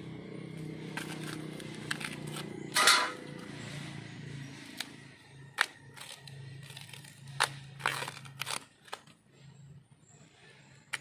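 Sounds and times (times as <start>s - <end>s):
knife cutting bamboo shoots: 0.8s - 3.4s, 4.6s - 9.2s.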